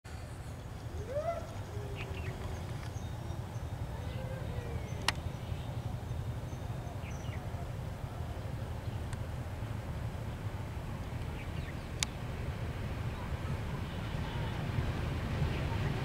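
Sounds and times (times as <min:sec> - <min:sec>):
birds chirping: 0:00.1 - 0:09.3, 0:10.2 - 0:12.3.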